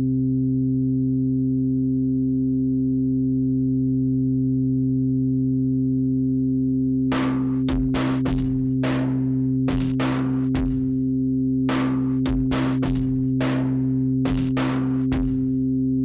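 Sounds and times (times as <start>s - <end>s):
low electronic drone: 5.2s - 16.0s
sharp percussive hit: 7.1s - 10.8s, 11.7s - 15.4s.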